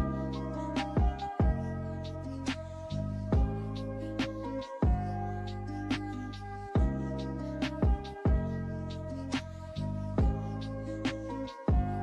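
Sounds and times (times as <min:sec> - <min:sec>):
drum beat with kick and snare: 0:01.0 - 0:01.6, 0:07.8 - 0:08.4.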